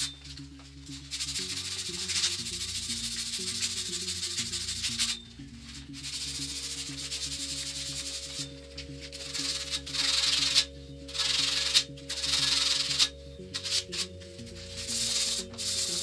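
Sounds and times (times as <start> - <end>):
sandpaper rasping on metal tube: 1.1 - 5.2, 6.0 - 8.4, 9.2 - 14.1, 14.8 - 16.0.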